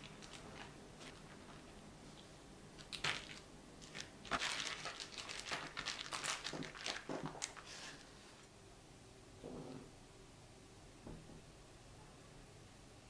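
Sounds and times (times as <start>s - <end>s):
plastic bag rustling and crinkling: 0.0s - 8.2s.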